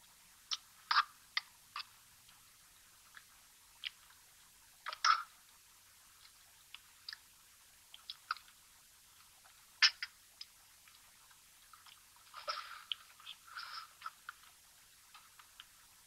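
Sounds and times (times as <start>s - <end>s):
man chewing and smacking: 9.3s - 15.8s.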